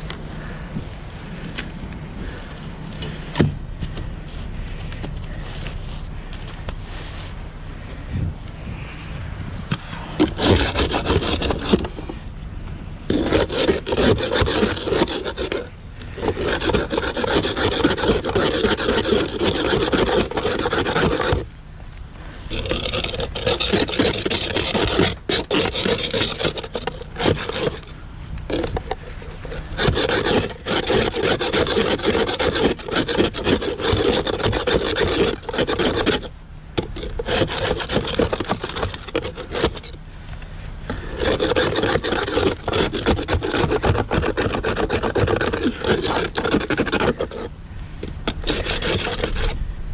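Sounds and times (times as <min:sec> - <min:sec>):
ice scraper rasping on glass: 0:10.2 - 0:12.1, 0:13.1 - 0:21.5, 0:22.5 - 0:40.0, 0:40.9 - 0:47.5, 0:48.2 - 0:49.6.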